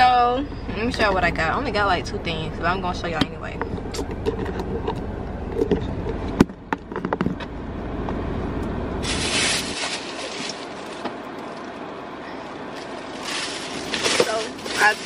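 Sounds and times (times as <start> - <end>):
car cabin hum: 0.0 - 15.0
plastic bag rustling: 9.0 - 11.8, 12.4 - 15.0.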